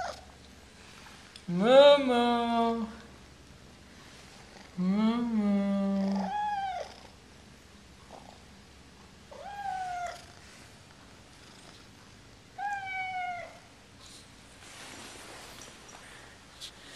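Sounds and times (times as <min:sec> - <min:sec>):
cat meowing: 0:09.3 - 0:10.3, 0:12.6 - 0:13.6.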